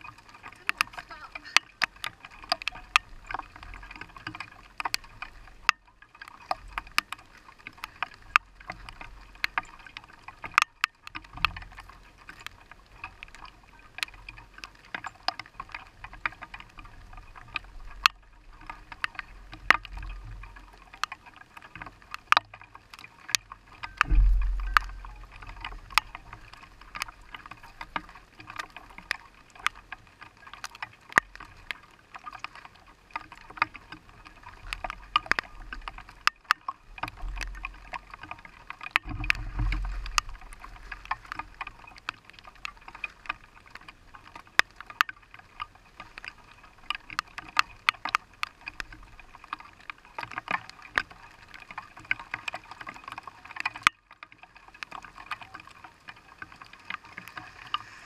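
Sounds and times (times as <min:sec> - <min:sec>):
rain tapping on car roof: 0:00.0 - 0:05.8, 0:06.4 - 0:58.0
low rumble: 0:24.0 - 0:26.9.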